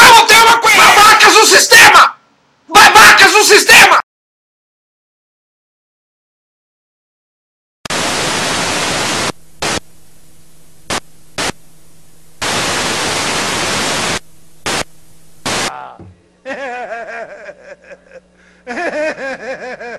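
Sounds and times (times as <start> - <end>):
loud television static hiss: 0.0 - 4.0, 7.9 - 19.2
quiet hiss: 8.0 - 17.0
low steady hum: 8.8 - 19.9.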